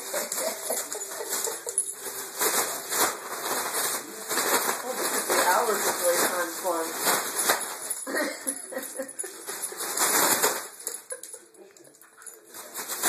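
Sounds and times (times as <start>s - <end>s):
foil balloon crinkling: 0.0s - 8.1s, 9.2s - 11.0s
dog scuffling on tile floor: 0.0s - 13.0s.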